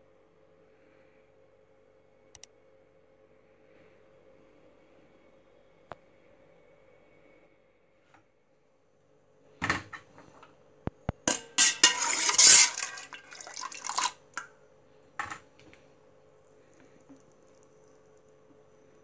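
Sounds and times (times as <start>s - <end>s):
sharp clicks: 2.3s - 2.5s
metal spoon scraping a pot: 11.3s - 14.1s.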